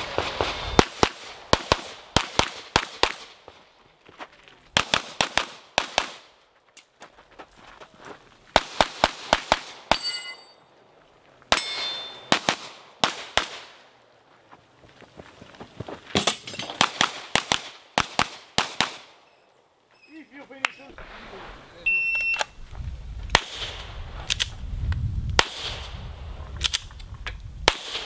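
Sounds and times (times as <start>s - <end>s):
steel targets ringing: 9.9s - 10.7s, 11.5s - 12.3s.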